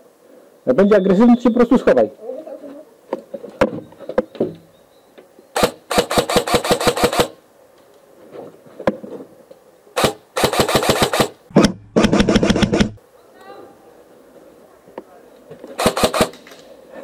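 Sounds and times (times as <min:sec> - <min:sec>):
airsoft rifle firing bursts: 0:05.6 - 0:07.4, 0:10.0 - 0:13.0, 0:15.8 - 0:16.4
airsoft rifle single shots: 0:05.6 - 0:07.4, 0:10.0 - 0:12.9, 0:15.8 - 0:16.4.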